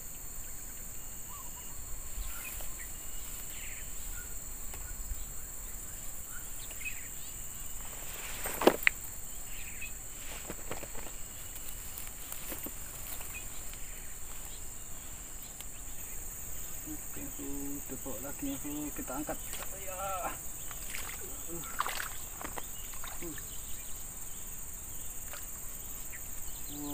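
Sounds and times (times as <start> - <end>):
insects buzzing: 0.0 - 26.9.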